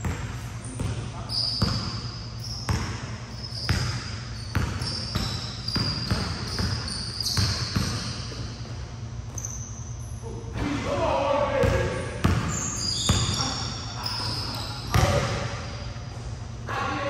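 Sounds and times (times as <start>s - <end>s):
basketball bouncing: 0.0s - 2.0s, 2.7s - 3.1s, 3.7s - 9.5s, 11.6s - 12.5s, 14.9s - 15.5s
shoe squeaks: 0.6s - 10.5s, 12.3s - 16.4s.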